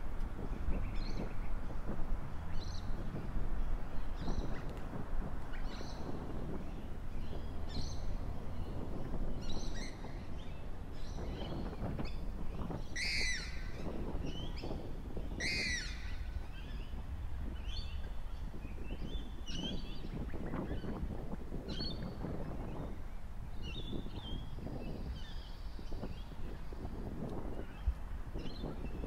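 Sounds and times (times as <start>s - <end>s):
bird chirps: 9.4s - 17.0s.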